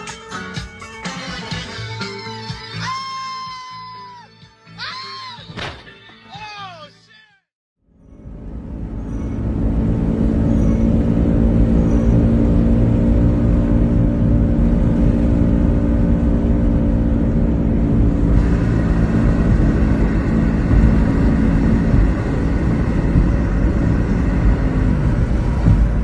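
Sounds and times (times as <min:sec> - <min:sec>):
road rumble: 0:07.8 - 0:26.0
vehicle engine drone: 0:07.8 - 0:26.0.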